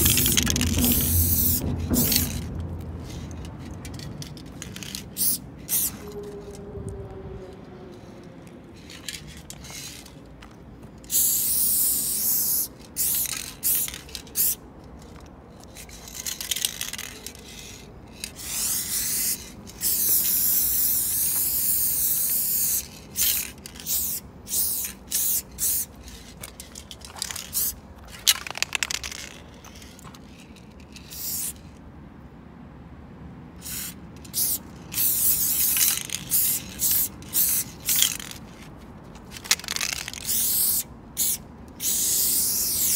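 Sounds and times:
spray can hissing in bursts: 0.0s - 2.4s, 4.8s - 6.0s, 11.1s - 14.6s, 18.4s - 26.0s, 27.5s - 27.8s, 31.1s - 31.6s, 33.6s - 38.3s, 39.6s - 42.9s.

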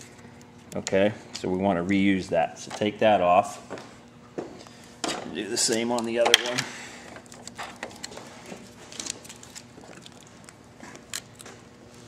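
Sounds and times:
faint steady hum: 0.0s - 12.0s
handling of wires: 5.0s - 12.0s.

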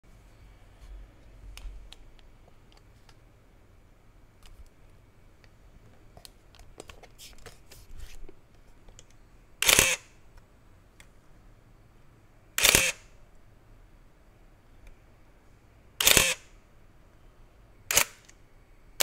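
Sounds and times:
camera shutter clack: 9.6s - 10.0s, 12.6s - 13.0s, 16.0s - 16.4s, 17.9s - 18.4s.

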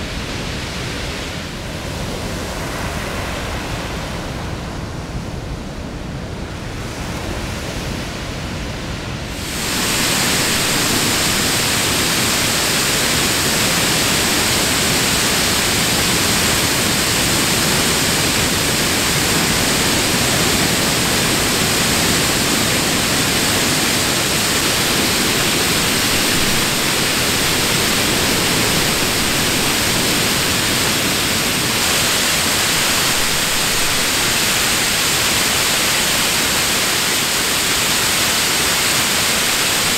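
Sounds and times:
ocean surf breaking on beach: 0.0s - 39.9s
waterfall rushing: 9.3s - 39.9s.

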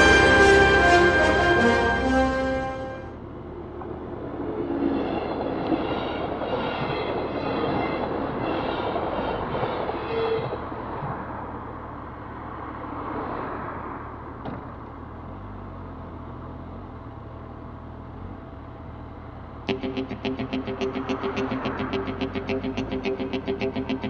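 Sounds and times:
background music: 0.0s - 3.2s, 19.7s - 24.0s
train wheels rumbling on rails: 3.4s - 12.6s.

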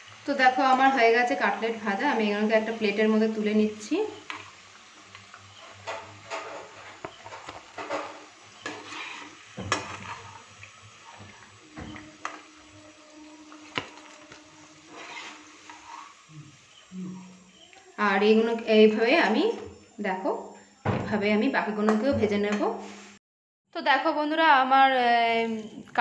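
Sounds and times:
oil sizzling: 0.0s - 23.2s
metal spoon scraping a pan: 5.5s - 12.8s, 13.5s - 17.3s.

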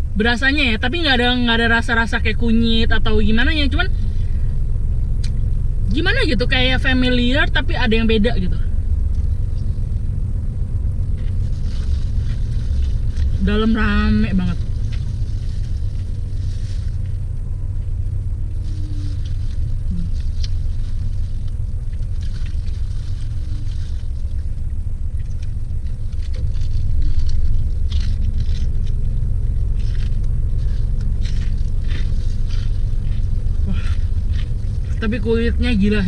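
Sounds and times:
car engine idling: 0.0s - 36.0s
crunchy chewing: 11.0s - 13.4s, 14.5s - 35.1s.

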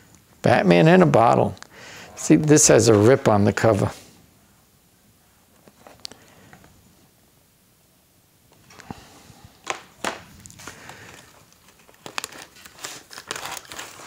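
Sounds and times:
rustling and crinkling in box: 10.3s - 14.0s.

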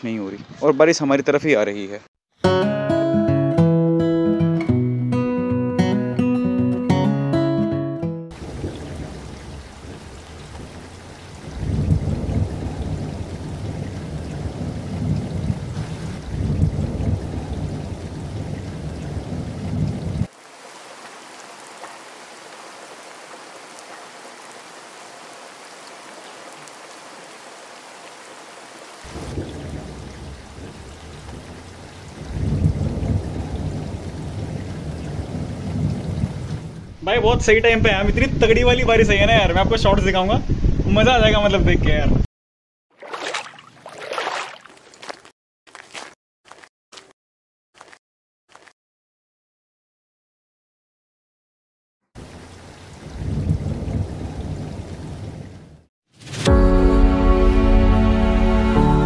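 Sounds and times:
heavy rain on stone roof: 8.3s - 38.0s, 52.2s - 55.9s
deep rumbling: 8.4s - 19.9s, 29.1s - 38.6s.

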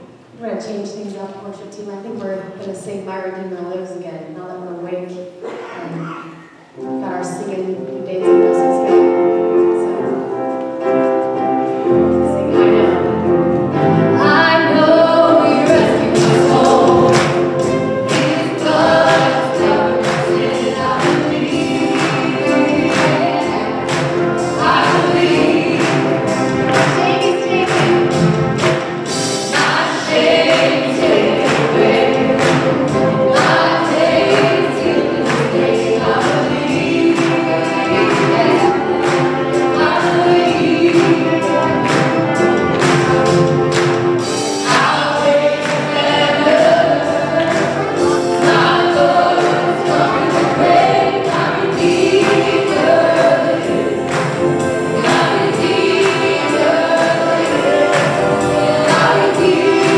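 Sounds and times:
worship band playing: 0.0s - 59.9s
keyboard chords: 5.8s - 59.9s
group of singers: 11.2s - 59.9s
drum beat: 15.6s - 59.9s.

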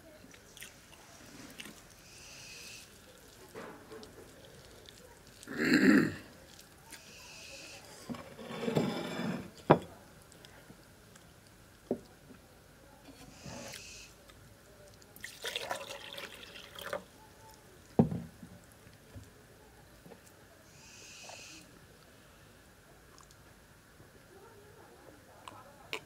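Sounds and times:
person chewing food: 2.9s - 5.5s.

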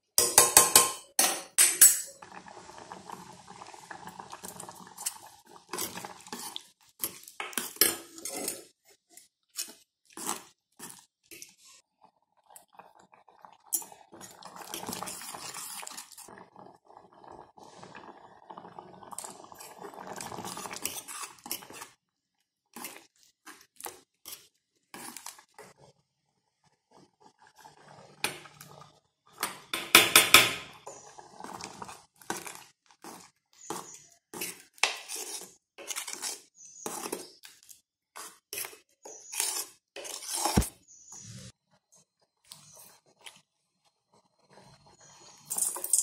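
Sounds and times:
ladle scraping a saucepan: 4.6s - 8.8s, 19.2s - 22.0s, 26.9s - 37.5s, 38.2s - 41.6s
scraping paste from a bowl: 32.3s - 41.6s.

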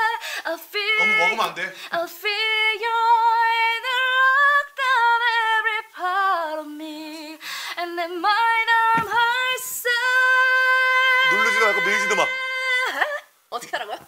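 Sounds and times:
person singing unaccompanied: 0.0s - 13.3s
singer breathing in: 0.2s - 0.5s, 7.4s - 7.8s.

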